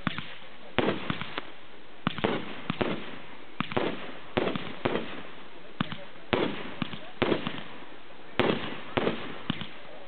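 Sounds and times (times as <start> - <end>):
fireworks bangs: 0.0 - 10.0
steady hiss: 0.0 - 10.0.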